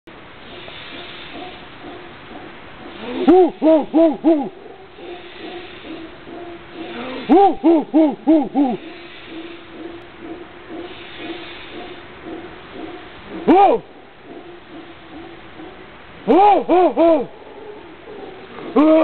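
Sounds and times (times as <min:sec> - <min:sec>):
person hooting like a monkey: 0:02.9 - 0:09.2, 0:13.3 - 0:14.0, 0:16.2 - 0:17.4, 0:18.1 - 0:19.0.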